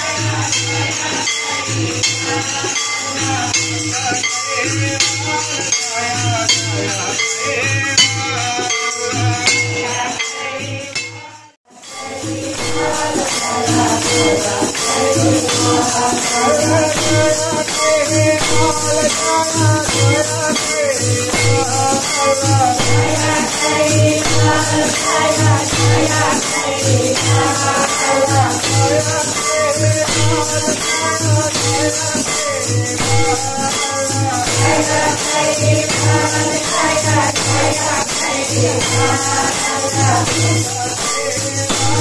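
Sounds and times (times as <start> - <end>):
crowd singing devotional song: 0.0 - 42.0
hand clappers jingling: 12.0 - 42.0.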